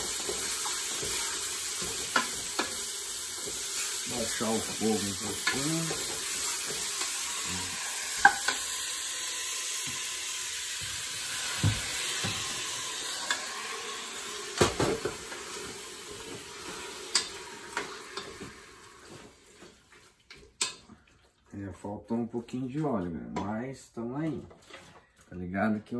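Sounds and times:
meat and garlic sizzling in oil: 0:00.0 - 0:20.8
wooden spoon knocking against pot: 0:08.2 - 0:08.6.

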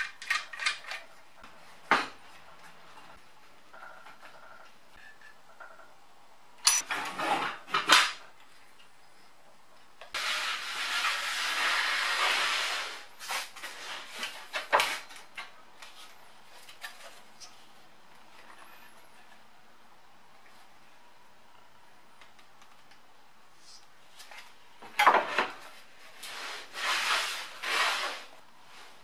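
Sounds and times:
saw base scraping along rail: 0:26.2 - 0:28.4.

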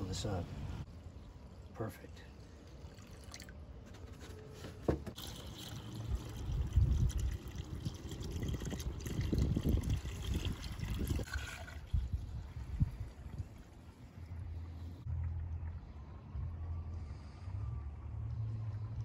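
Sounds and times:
liquid gurgling from a jug: 0:05.2 - 0:13.8.

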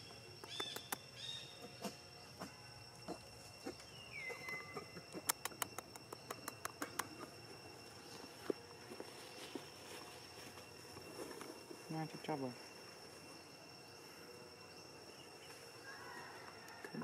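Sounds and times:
insects buzzing: 0:00.0 - 0:17.0
sharp clicks: 0:00.4 - 0:01.1, 0:05.2 - 0:07.2.

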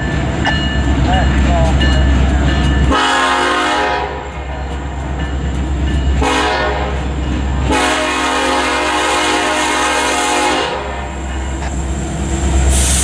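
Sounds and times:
locomotive air horn blasts: 0:02.9 - 0:04.2, 0:06.2 - 0:07.0, 0:07.7 - 0:11.0.

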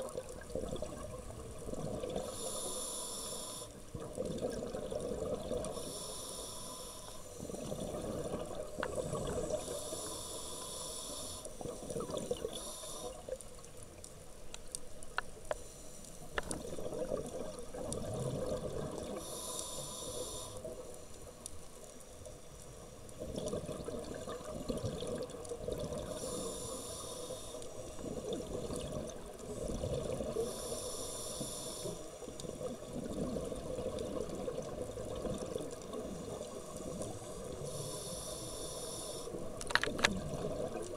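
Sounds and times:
exhaled bubbles gurgling: 0:00.0 - 0:02.9, 0:03.8 - 0:06.1, 0:07.4 - 0:10.2, 0:11.6 - 0:13.4, 0:16.4 - 0:20.8, 0:23.0 - 0:27.1, 0:27.9 - 0:40.9
regulator inhalation hiss: 0:02.2 - 0:03.8, 0:05.7 - 0:07.8, 0:09.4 - 0:13.3, 0:19.2 - 0:21.4, 0:26.1 - 0:28.1, 0:30.4 - 0:32.3, 0:36.2 - 0:39.6.

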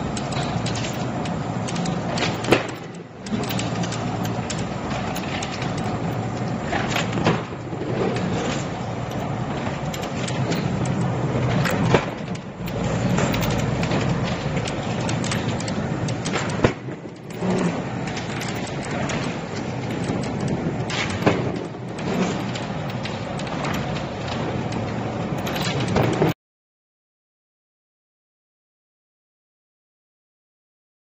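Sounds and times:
laminating machine running: 0:00.0 - 0:26.2.

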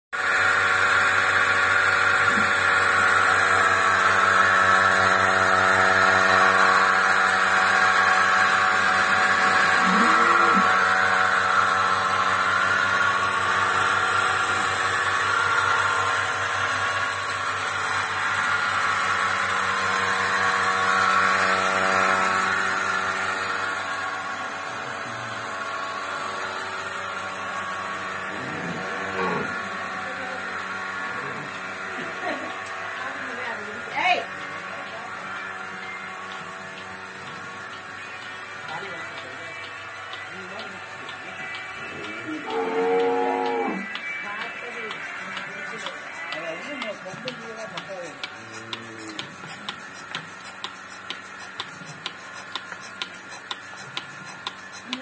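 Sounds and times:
vacuum pump humming: 0:19.4 - 0:55.0.

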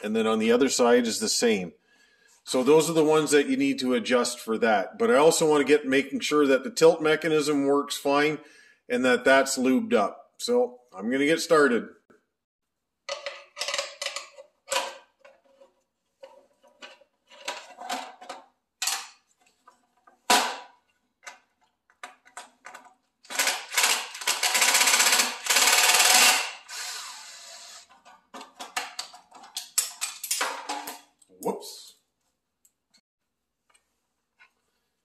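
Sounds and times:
plastic parts rattling: 0:13.1 - 0:15.6, 0:16.2 - 0:20.6, 0:21.2 - 0:26.5, 0:27.9 - 0:31.1
cordless drill running: 0:24.7 - 0:27.9.

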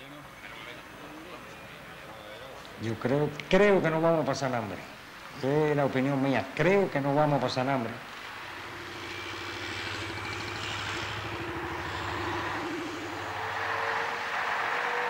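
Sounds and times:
faint engine whine: 0:00.0 - 0:15.0
road noise: 0:00.0 - 0:15.0
bus engine rumbling past: 0:07.8 - 0:15.0.

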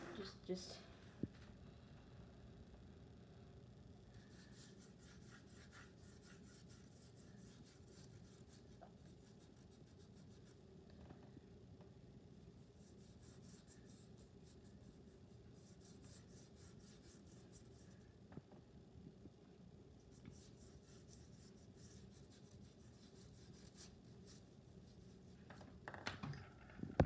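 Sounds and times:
low room hum: 0:00.0 - 0:27.0
paintbrush strokes on paper: 0:04.1 - 0:10.7, 0:12.5 - 0:18.1, 0:20.0 - 0:25.4.

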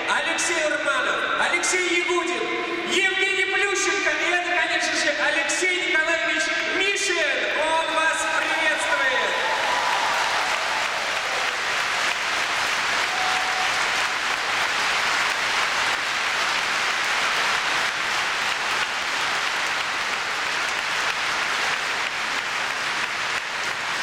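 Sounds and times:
large audience applauding: 0:08.4 - 0:24.0.

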